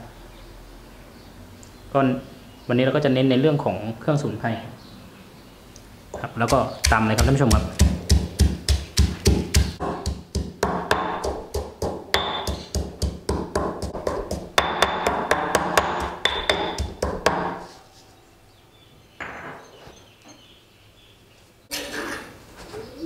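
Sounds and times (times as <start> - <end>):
stone pestle pounding in mortar: 6.4 - 17.7.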